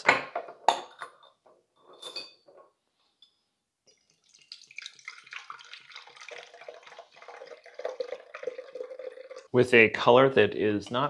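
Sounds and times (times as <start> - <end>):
liquid trickling through strainer: 3.9 - 9.5.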